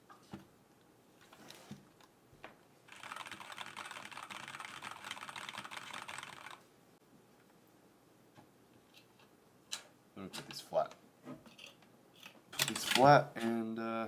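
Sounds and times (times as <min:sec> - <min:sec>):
fast typing on mechanical keyboard: 0:02.9 - 0:06.6.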